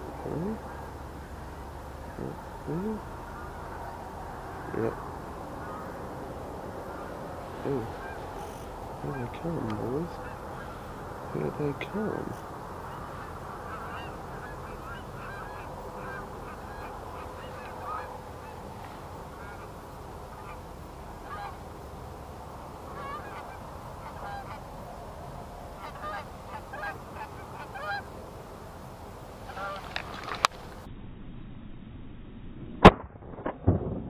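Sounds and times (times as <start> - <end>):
geese honking: 0.0 - 21.8, 22.5 - 28.2, 29.4 - 30.5
sharp crack: 32.6 - 34.0.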